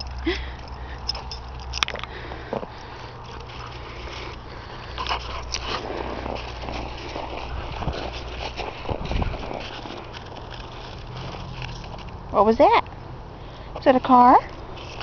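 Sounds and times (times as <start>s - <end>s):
dog biting at leash clicks: 1.0s - 2.1s.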